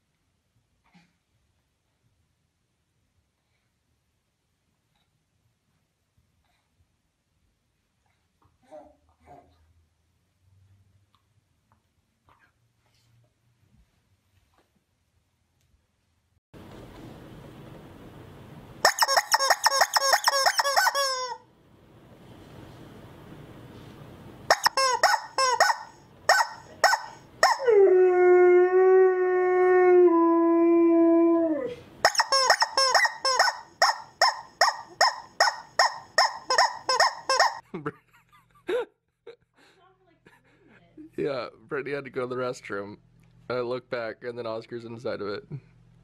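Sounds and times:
rubber chicken toy squeaks: 18.8s - 21.4s, 24.5s - 27.6s, 32.0s - 37.6s.

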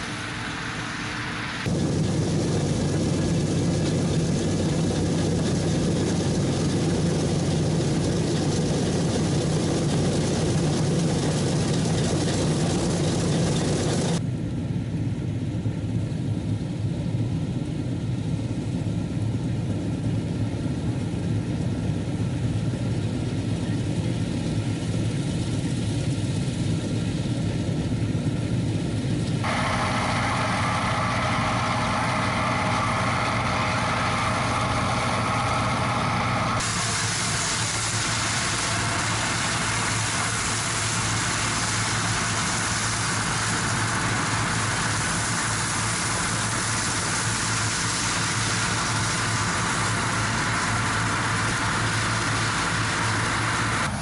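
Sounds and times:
threshing machinery running: 0.0s - 14.2s, 29.4s - 54.0s
diesel engine drone: 0.0s - 54.0s.

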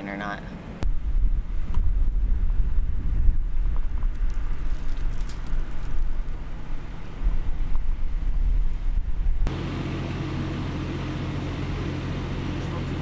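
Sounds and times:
wind buffeting microphone: 0.8s - 9.5s.

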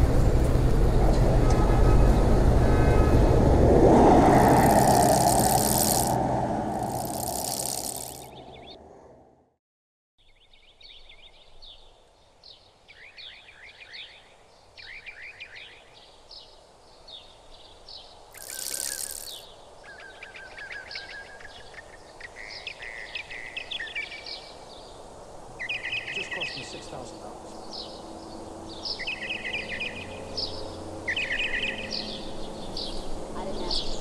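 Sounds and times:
rushing hiss: 4.3s - 8.3s, 18.4s - 19.4s
songbirds chirping: 10.2s - 34.0s.

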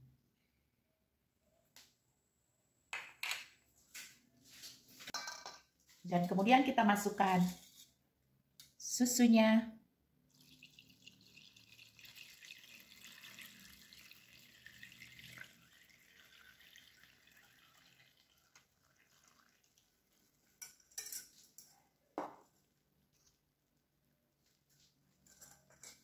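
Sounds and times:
milk pouring through a sieve: 10.2s - 21.4s.

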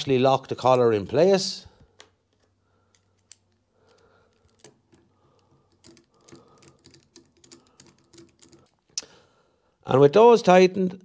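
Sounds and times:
small metal parts handled: 2.0s - 9.0s.

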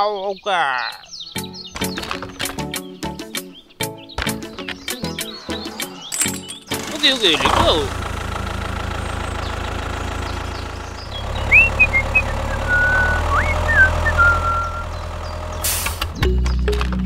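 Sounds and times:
music: 1.3s - 7.9s, 16.2s - 17.0s
tractor engine droning: 4.6s - 16.8s.

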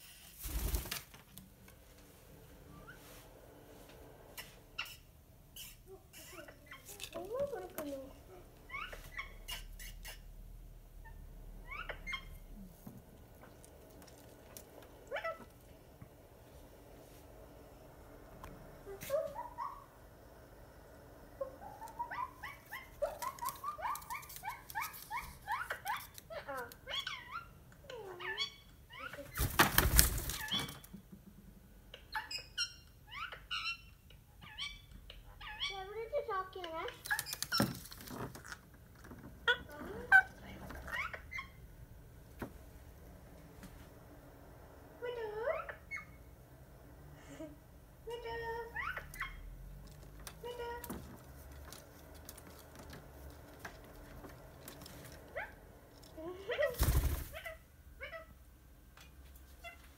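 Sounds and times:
parakeet chirping: 4.3s - 14.0s, 14.6s - 15.8s, 18.8s - 20.1s, 21.2s - 29.4s, 31.9s - 36.0s, 36.6s - 37.8s, 39.4s - 41.7s, 45.0s - 46.3s, 48.2s - 49.8s.

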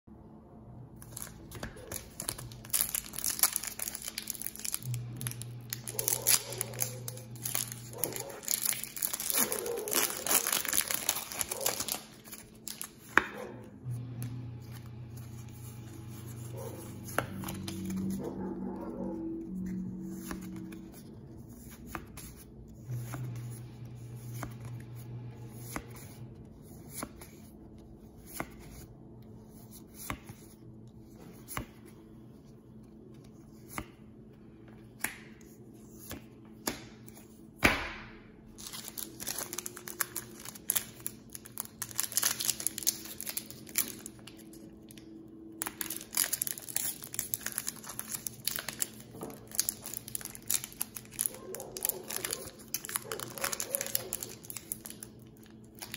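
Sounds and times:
foil wrapper crinkling and tearing: 0.9s - 13.2s, 14.7s - 18.4s, 38.5s - 55.9s
trading cards snapping: 36.0s - 37.9s.

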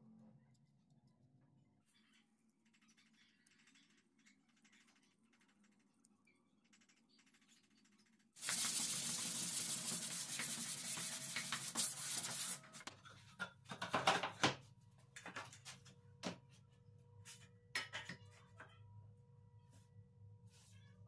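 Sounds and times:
sanding block scraping wood: 8.4s - 12.7s.

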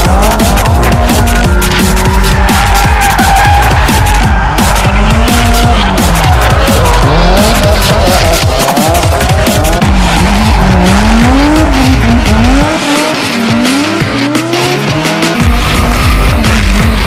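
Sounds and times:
car engines revving hard: 0.0s - 17.0s
tyres squealing: 0.1s - 14.4s.

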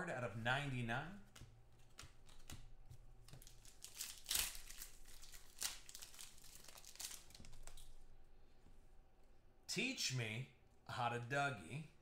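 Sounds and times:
foil wrapper crinkling and tearing: 3.4s - 7.9s.

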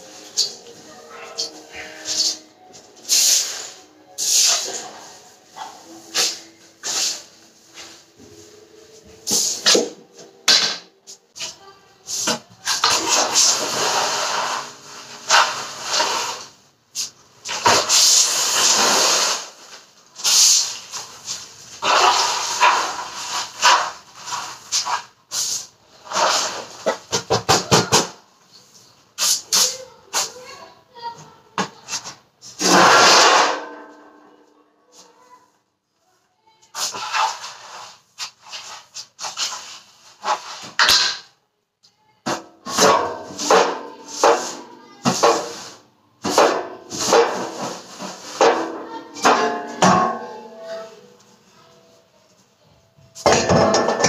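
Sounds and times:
broom swishing on floor: 0.0s - 9.9s, 36.8s - 40.8s
background music with regular beat: 0.0s - 11.4s.

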